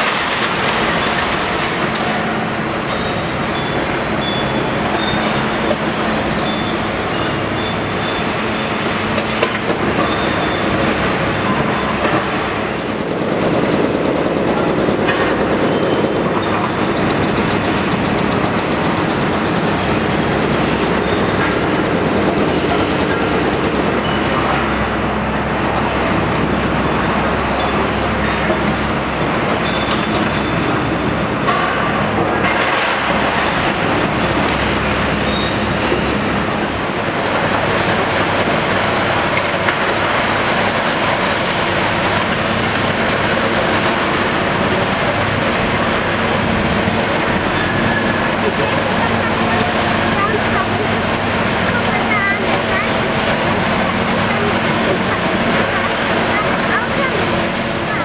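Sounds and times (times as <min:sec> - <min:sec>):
diesel engine under load: 0:00.0 - 0:58.0
short metal squeals: 0:10.0 - 0:10.6, 0:29.6 - 0:31.4.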